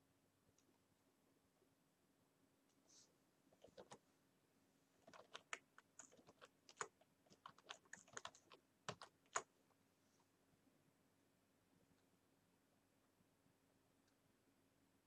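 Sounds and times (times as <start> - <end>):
keyboard keys clicking: 5.0 - 9.5.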